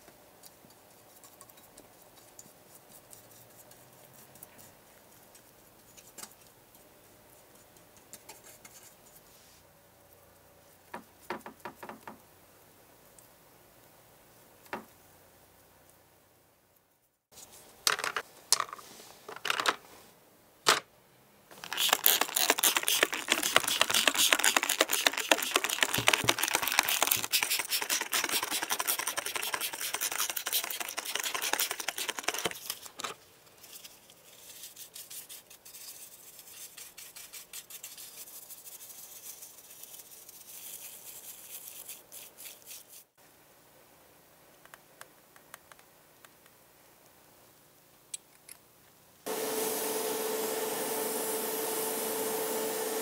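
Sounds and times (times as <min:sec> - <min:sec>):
bristle brush scrubbing: 0:21.6 - 0:32.9.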